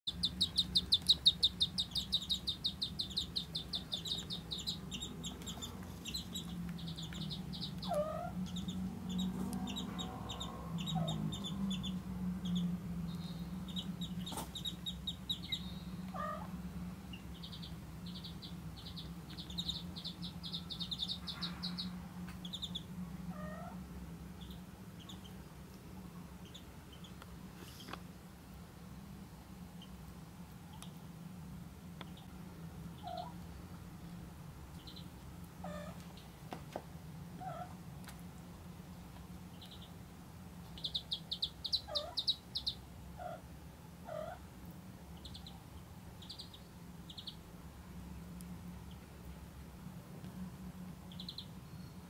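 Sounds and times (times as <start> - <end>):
ducklings peeping: 0.1 - 28.0, 30.6 - 31.0, 32.0 - 33.5, 34.7 - 36.3, 37.4 - 38.2, 39.4 - 44.5, 45.1 - 47.5, 51.0 - 52.0
kitten meowing: 16.1 - 16.5.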